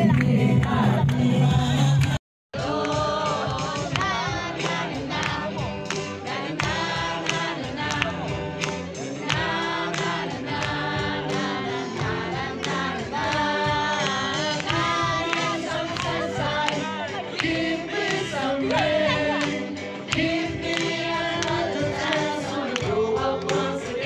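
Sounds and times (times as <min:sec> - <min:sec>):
crowd singing loudly: 0:00.0 - 0:24.0
music with a steady beat: 0:00.0 - 0:24.0.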